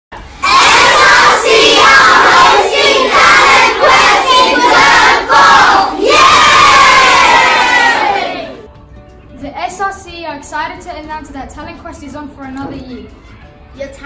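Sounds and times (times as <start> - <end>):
children shouting in unison: 0.4 - 8.7.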